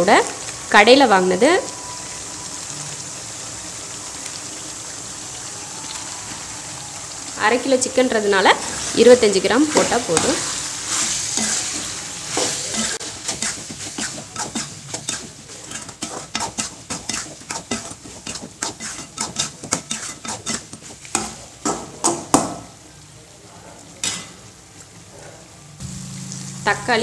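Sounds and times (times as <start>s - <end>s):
frying sizzle: 0.0s - 27.0s
ladle scraping metal pan: 9.7s - 21.3s.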